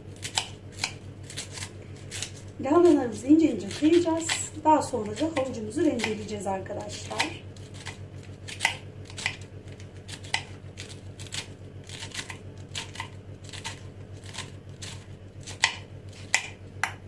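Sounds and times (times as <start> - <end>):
steady low hum: 0.0 - 17.0
knife cutting on wooden board: 0.2 - 3.0, 6.9 - 17.0.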